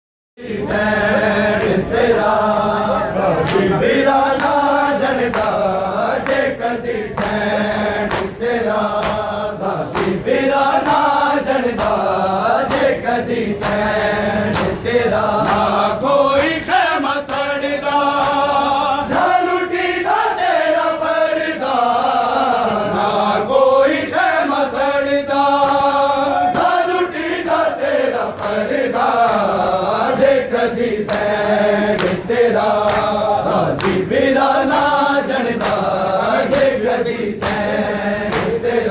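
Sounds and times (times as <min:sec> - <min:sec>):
men chanting in unison: 0:00.4 - 0:38.9
hands slapping on chests: 0:07.1 - 0:15.8, 0:17.2 - 0:19.4, 0:31.0 - 0:38.8.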